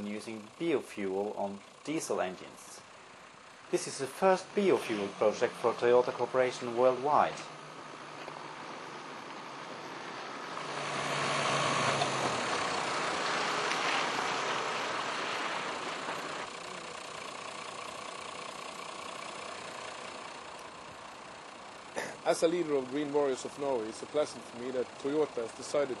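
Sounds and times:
suv driving past: 4.4 - 18.7.

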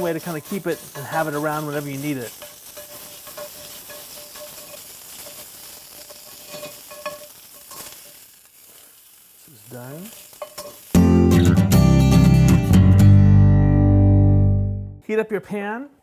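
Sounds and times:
spatula tapping: 0.0 - 7.9
metal spatula scraping pan: 0.0 - 8.1
meat sizzling in a skillet: 0.0 - 12.8.

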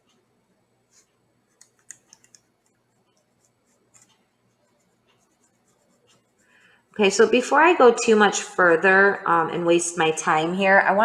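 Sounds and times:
pencil scratching on paper: 0.9 - 6.6.

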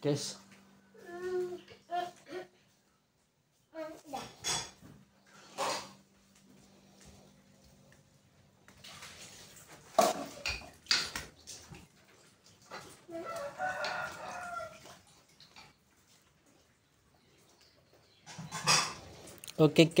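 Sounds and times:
rooster crowing: 13.1 - 15.0.

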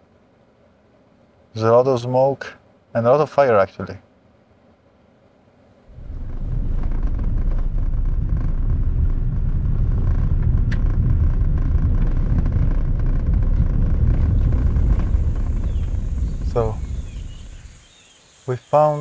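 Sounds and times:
car interior road and engine rumble: 5.6 - 18.4.

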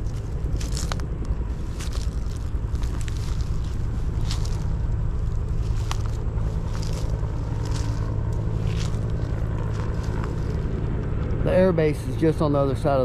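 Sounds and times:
footsteps through grass: 0.0 - 11.0
helicopter drone: 0.0 - 13.0.

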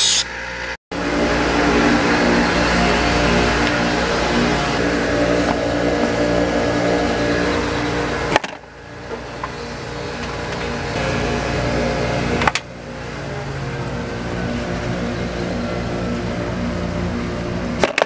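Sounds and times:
machinery droning hum: 0.0 - 18.0.

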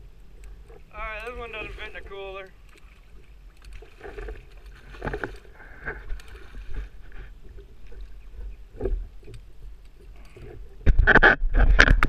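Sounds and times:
wind rumble on microphone: 3.8 - 12.0.

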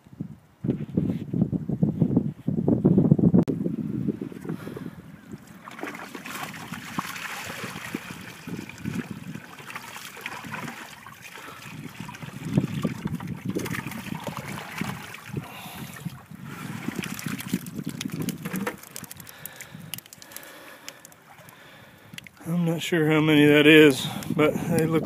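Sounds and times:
water pouring onto wet sand: 5.6 - 22.3.

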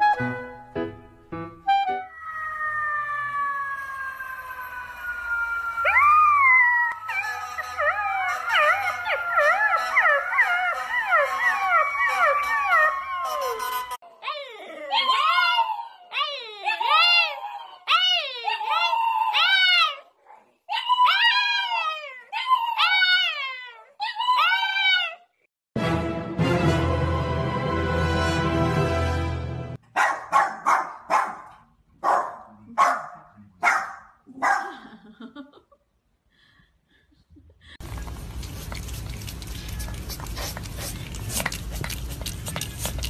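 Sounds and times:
puppy howling: 2.0 - 20.0.

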